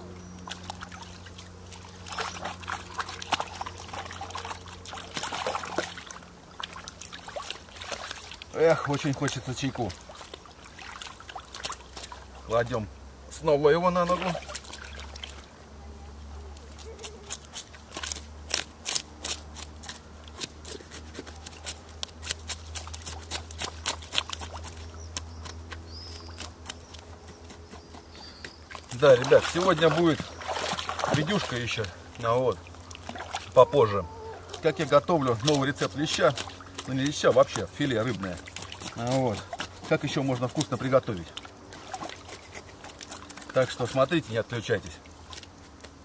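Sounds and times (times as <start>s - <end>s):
hands splashing in water: 0.4s - 12.3s, 14.1s - 15.5s, 28.7s - 31.9s, 32.5s - 33.7s, 34.5s - 44.0s
knife scraping fish scales: 16.7s - 24.8s, 42.2s - 43.9s.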